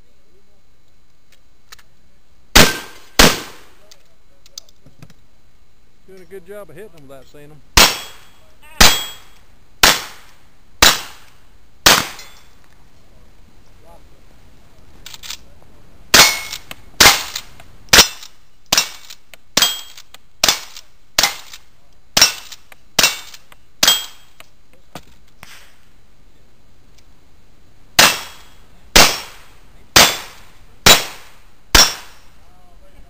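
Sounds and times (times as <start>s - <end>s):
rifle shots: 2.5s - 3.8s, 7.8s - 12.5s, 16.1s - 21.6s, 28.0s - 32.3s.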